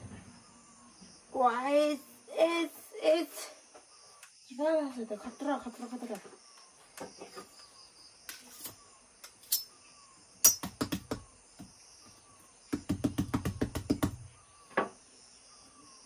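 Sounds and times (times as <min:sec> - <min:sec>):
knife chopping fruit on wooden table: 0:10.4 - 0:11.7, 0:12.7 - 0:14.9.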